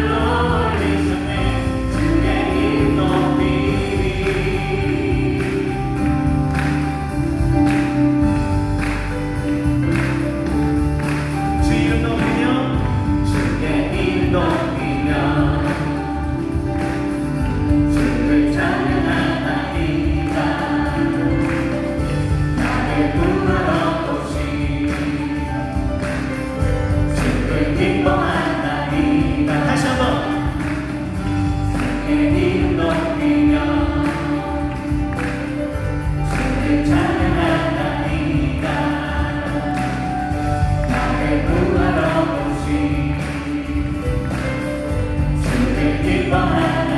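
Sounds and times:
man singing: 0.0s - 6.1s, 11.4s - 16.8s, 17.7s - 21.5s, 22.6s - 25.9s, 27.0s - 35.1s, 36.1s - 46.9s
women singing: 0.0s - 6.5s, 17.8s - 22.0s, 22.6s - 25.9s, 31.8s - 35.4s, 36.2s - 44.4s, 45.4s - 46.9s
acoustic guitar: 0.0s - 46.9s
bass guitar: 0.0s - 46.9s
drum kit beat: 0.0s - 46.9s
keyboard: 0.0s - 46.9s.

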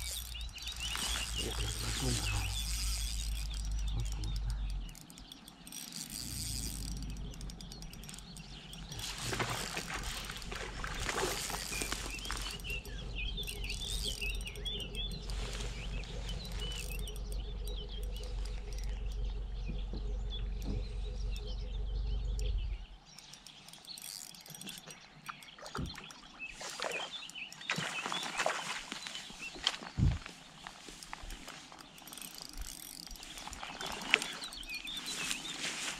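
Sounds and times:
steady low rumble: 0.0s - 5.5s, 6.2s - 23.1s
faint clicks: 0.0s - 35.5s
small birds chirping and singing: 0.0s - 35.9s.

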